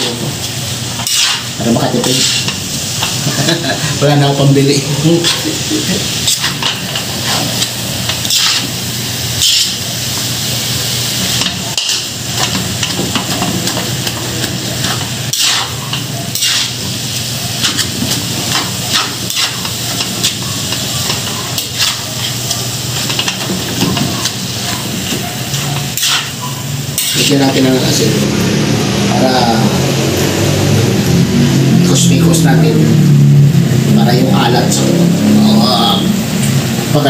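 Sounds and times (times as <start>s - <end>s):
meat sizzling in a wok: 0.0s - 28.3s
metal spatula scraping pan: 1.0s - 2.6s, 6.2s - 8.7s, 9.4s - 9.8s, 14.8s - 16.8s, 17.6s - 22.4s, 25.5s - 27.5s.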